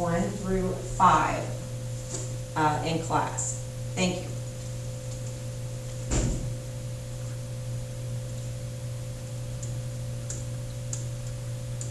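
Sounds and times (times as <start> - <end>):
electrical hum: 0.0 - 11.9
thump: 6.1 - 6.6.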